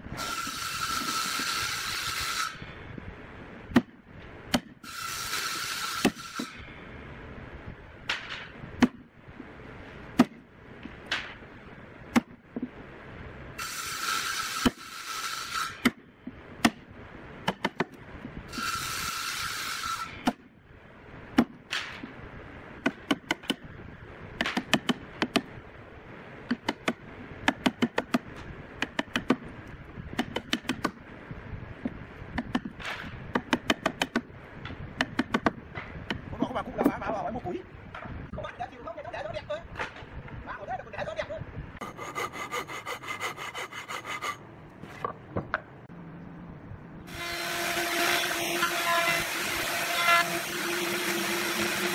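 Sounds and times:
hiss: 0:04.8 - 0:06.8, 0:13.6 - 0:15.9, 0:18.5 - 0:20.3.

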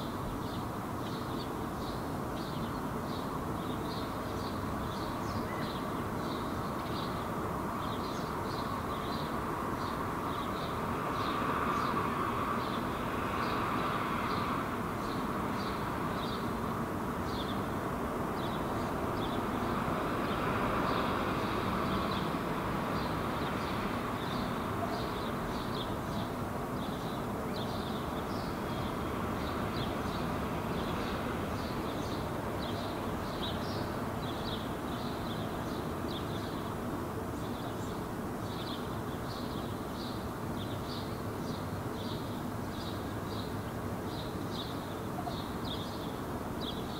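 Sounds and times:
bird chirping: 0:00.4 - 0:07.2, 0:23.0 - 0:36.7, 0:37.4 - 0:46.9.

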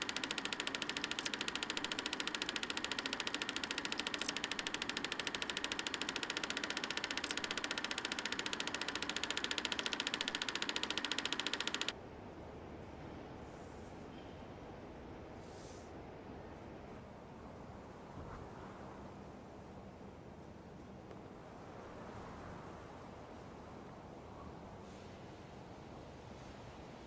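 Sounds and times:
film projector clattering: 0:00.0 - 0:12.0.

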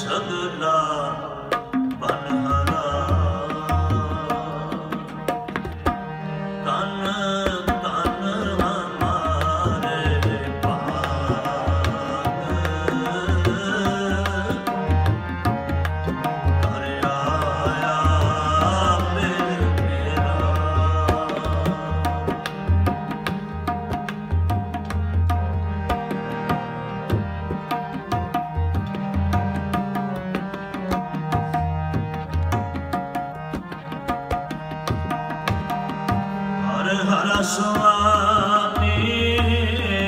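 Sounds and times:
harmonium tones: 0:00.0 - 0:40.0
tabla playing: 0:00.0 - 0:40.0.

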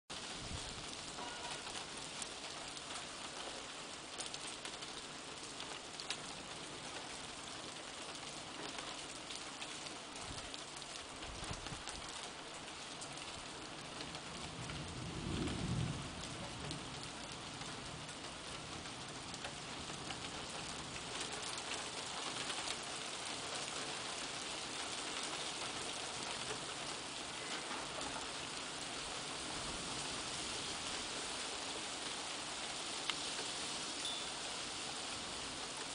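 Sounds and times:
steady rain: 0:00.1 - 0:35.9
low thunder rumble: 0:14.4 - 0:17.3.

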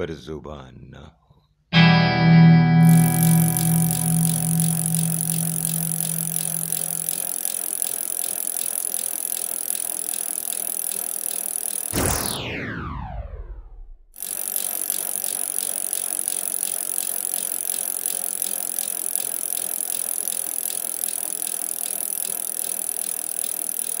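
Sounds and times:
mechanical clicking rattle: 0:02.8 - 0:12.0, 0:14.2 - 0:24.0.

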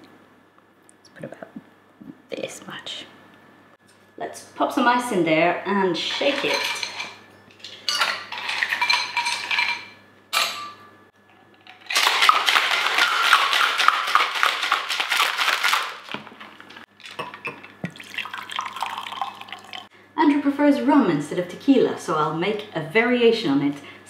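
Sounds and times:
ice cubes clinking into metal shaker: 0:11.6 - 0:19.8
ice rattling in shaker: 0:11.6 - 0:19.9
drink pouring into glass: 0:11.8 - 0:15.0, 0:17.0 - 0:19.9.

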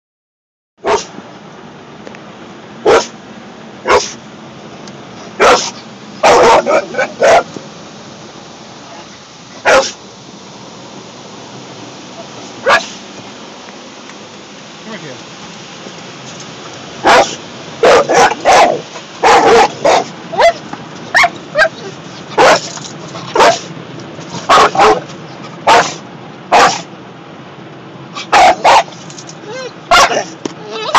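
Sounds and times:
dog barking: 0:00.8 - 0:01.1, 0:02.8 - 0:03.1, 0:03.9 - 0:04.2, 0:05.4 - 0:07.5, 0:09.6 - 0:10.0, 0:12.6 - 0:13.0, 0:17.0 - 0:22.7, 0:23.3 - 0:23.7, 0:24.5 - 0:25.0, 0:25.6 - 0:26.9, 0:28.2 - 0:28.9, 0:29.9 - 0:30.9
car wash hiss: 0:02.8 - 0:27.4.

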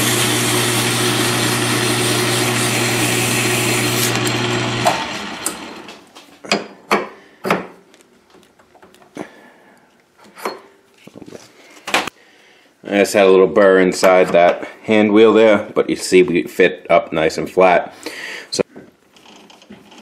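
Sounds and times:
abrasive cloth rasping on shaft: 0:00.0 - 0:05.6
lathe motor hum: 0:00.0 - 0:06.0.

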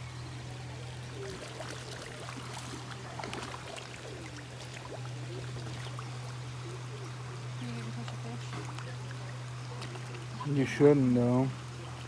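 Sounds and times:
fish splashing and slurping water: 0:00.0 - 0:12.0
steady low hum: 0:00.0 - 0:12.0.

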